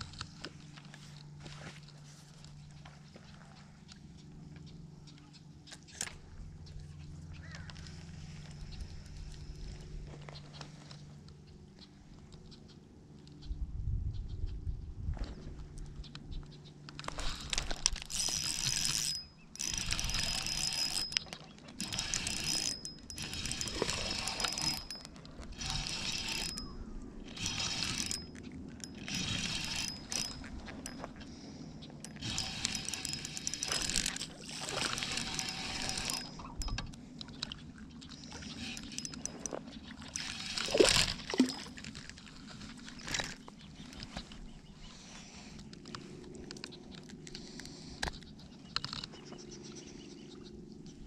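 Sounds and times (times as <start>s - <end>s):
fishing reel gears whirring: 17.0s - 44.4s.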